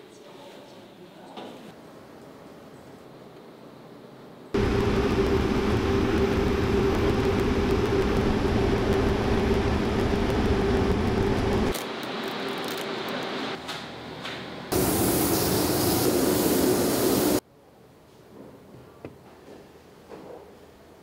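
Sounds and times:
machinery humming: 4.6s - 13.6s, 14.6s - 17.4s
hiss: 14.7s - 17.4s.

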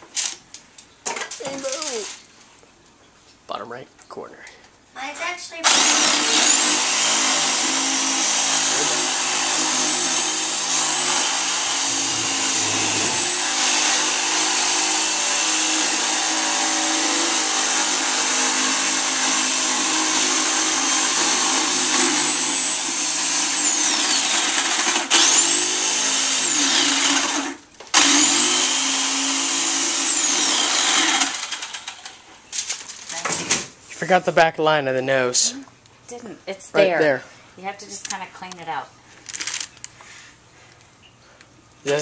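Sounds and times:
jigsaw cutting with high whine: 5.6s - 32.3s.

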